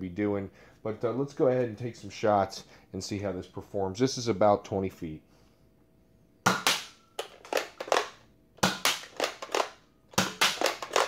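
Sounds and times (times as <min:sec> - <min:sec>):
toy blaster plastic clacks: 0:06.7 - 0:11.0.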